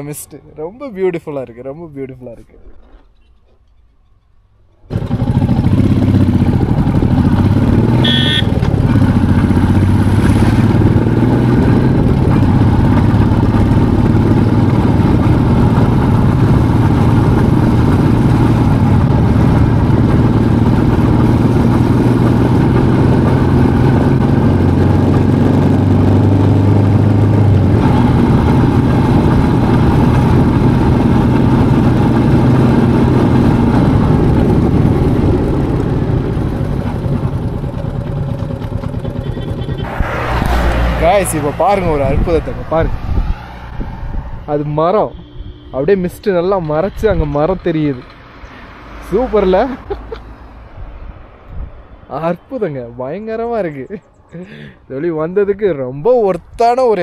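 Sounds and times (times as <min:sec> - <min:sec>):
motorcycle engine running: 0:04.9 - 0:43.3.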